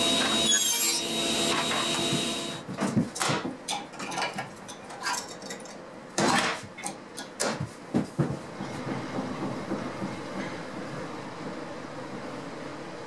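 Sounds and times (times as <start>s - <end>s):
table saw running: 0.0s - 2.6s.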